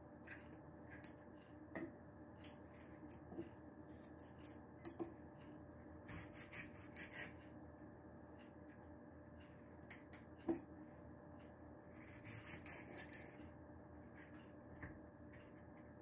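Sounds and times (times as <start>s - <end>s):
low background hum: 0.0s - 16.0s
knife slicing cucumber on board: 6.1s - 7.3s.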